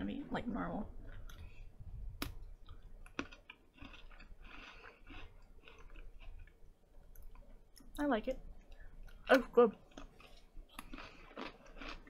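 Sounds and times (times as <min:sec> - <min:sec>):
cookie crunching: 0:02.2 - 0:07.5, 0:08.7 - 0:12.0.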